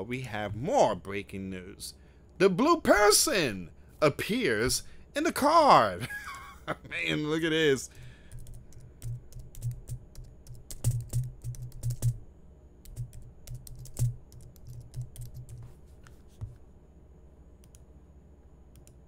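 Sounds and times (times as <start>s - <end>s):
typing on computer keyboard: 8.3s - 12.2s, 12.8s - 15.6s.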